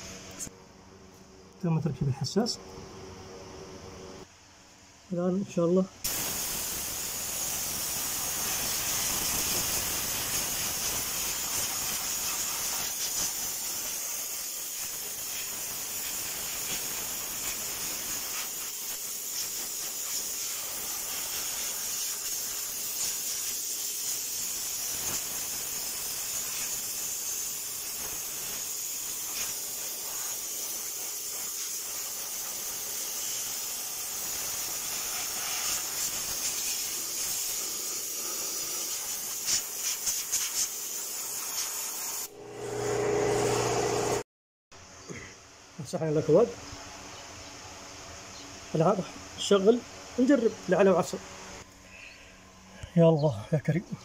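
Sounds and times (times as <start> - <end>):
spray gun hissing: 6.0 - 42.3.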